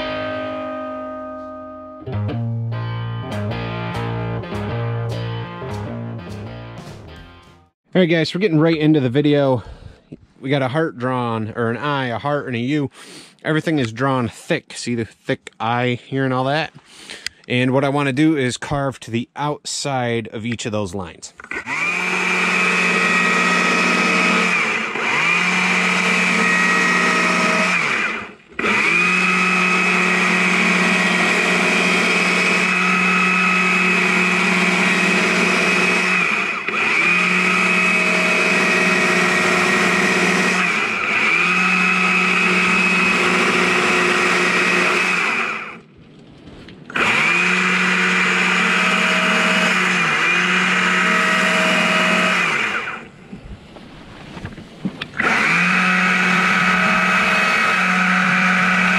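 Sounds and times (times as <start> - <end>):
electric drill boring into log: 21.4 - 45.8, 46.9 - 53.1, 55.1 - 58.9.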